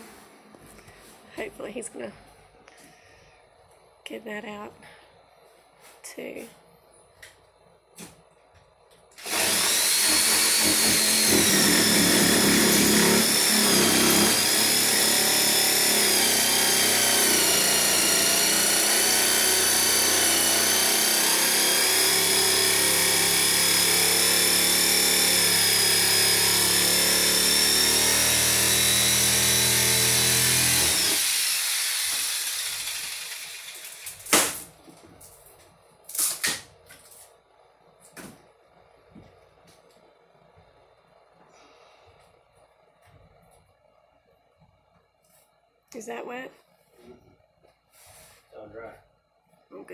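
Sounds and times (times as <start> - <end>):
power tool cutting plywood: 9.2 - 34.4.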